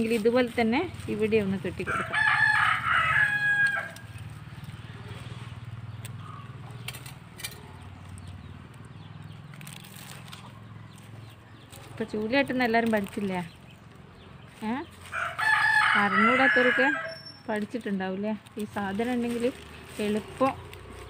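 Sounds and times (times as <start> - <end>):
rooster crowing: 1.8 - 4.1, 15.1 - 17.4.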